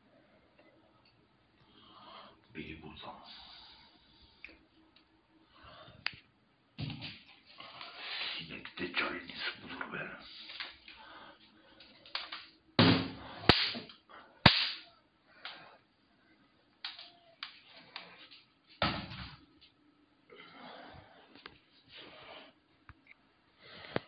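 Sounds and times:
sharp slaps and knocks: 0:12.2 - 0:14.9.

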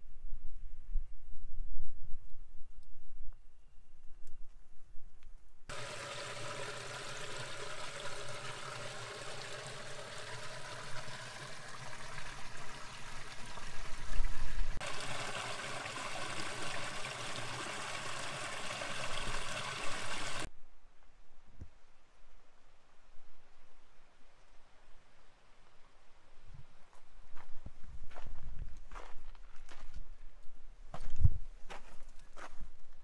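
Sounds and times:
creek trickling over rocks: 0:05.7 - 0:20.5.

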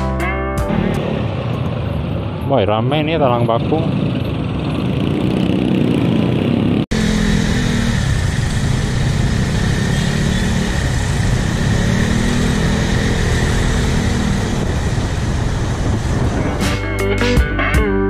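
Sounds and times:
surrounding motorbike engines: 0:00.7 - 0:16.6
wind and road noise: 0:00.7 - 0:16.8
motorcycle engine running: 0:03.8 - 0:16.5.

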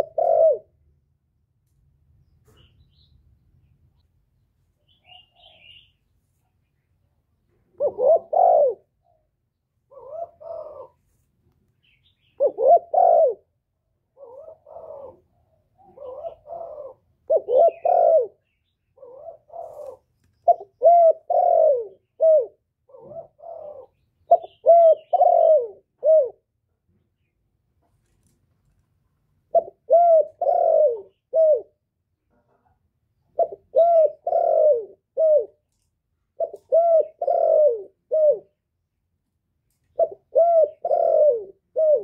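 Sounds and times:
dove cooing: 0:00.0 - 0:00.8, 0:07.7 - 0:11.1, 0:12.1 - 0:26.5, 0:29.5 - 0:31.8, 0:33.3 - 0:35.7, 0:36.3 - 0:38.6, 0:39.9 - 0:42.0.

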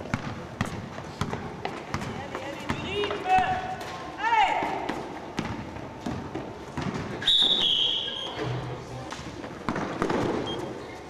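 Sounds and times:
basketball bouncing: 0:00.0 - 0:03.9, 0:04.6 - 0:07.7, 0:09.4 - 0:10.5
referee's whistle blast: 0:07.2 - 0:08.3.

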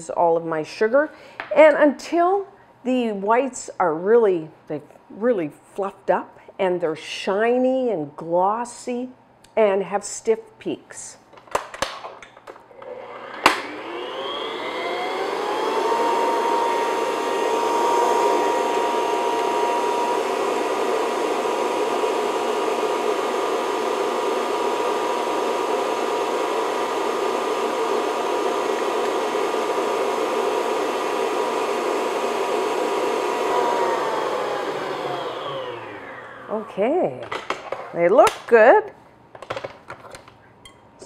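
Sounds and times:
stand mixer motor whining: 0:12.8 - 0:36.6.

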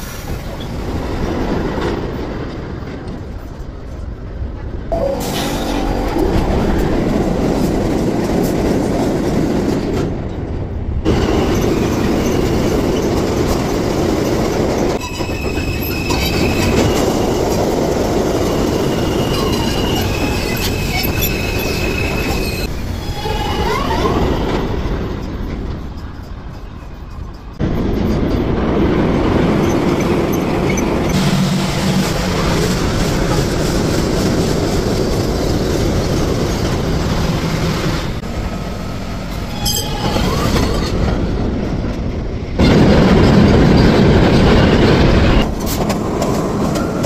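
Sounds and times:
subway train rumble and rail clatter: 0:00.0 - 0:47.0
high-pitched wheel squeal: 0:04.9 - 0:07.4, 0:15.0 - 0:17.6, 0:18.4 - 0:27.6, 0:39.3 - 0:41.0.

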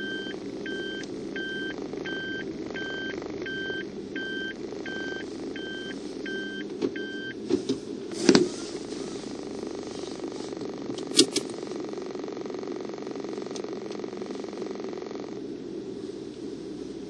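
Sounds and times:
car engine idling: 0:00.0 - 0:17.0
sharp clicks: 0:10.6 - 0:11.6, 0:13.4 - 0:14.1.

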